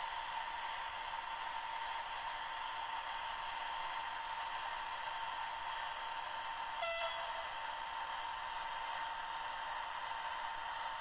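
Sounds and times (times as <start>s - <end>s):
model locomotive running sound: 0.0s - 11.0s
short horn toot: 6.8s - 7.5s.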